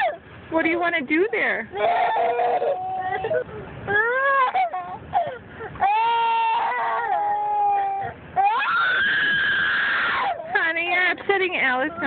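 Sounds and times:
young boy crying and wailing: 0:01.8 - 0:10.6.

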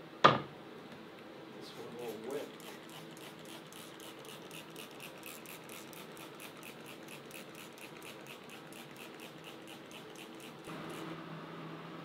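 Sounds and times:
spray bottle squirts: 0:02.1 - 0:11.1.

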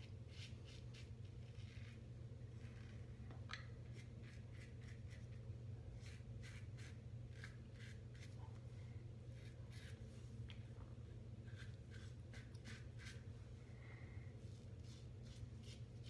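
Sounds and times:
steady low hum: 0:00.0 - 0:16.0
razor scraping stubble: 0:11.5 - 0:13.2.

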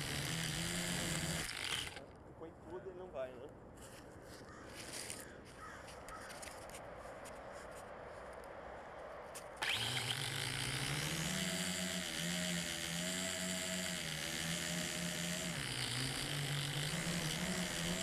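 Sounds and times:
drone motors whirring: 0:00.0 - 0:02.0, 0:09.6 - 0:18.0.

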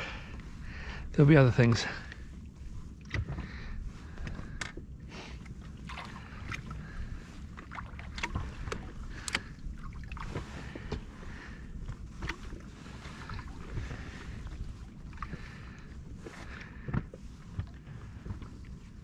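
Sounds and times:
small waves lapping against boat: 0:00.0 - 0:19.0
wind rumble on microphone: 0:00.0 - 0:19.0.

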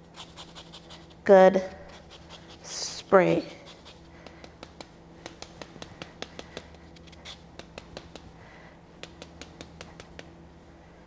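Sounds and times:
lemon scraped on a zester: 0:00.0 - 0:01.2.

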